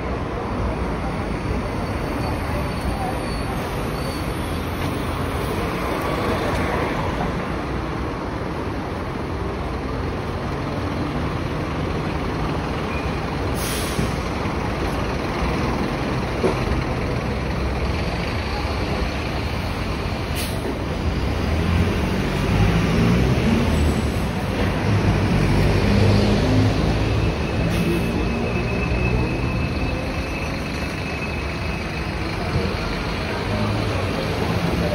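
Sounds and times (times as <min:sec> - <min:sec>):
buses and cars passing: 0:00.0 - 0:34.9
short hisses: 0:13.6 - 0:14.2.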